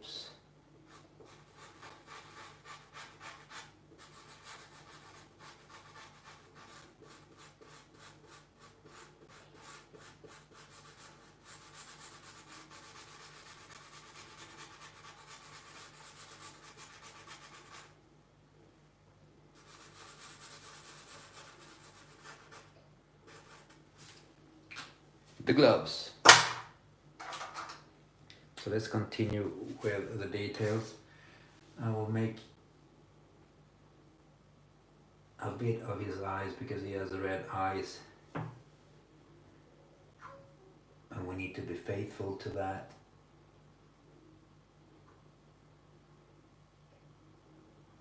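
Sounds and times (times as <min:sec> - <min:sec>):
marker scratching on paper: 0:00.9 - 0:18.0, 0:19.6 - 0:22.7, 0:23.3 - 0:24.2.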